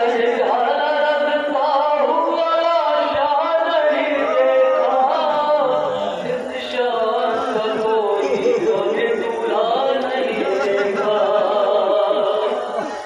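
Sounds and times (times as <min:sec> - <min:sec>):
crowd of men chanting: 0:00.0 - 0:13.0.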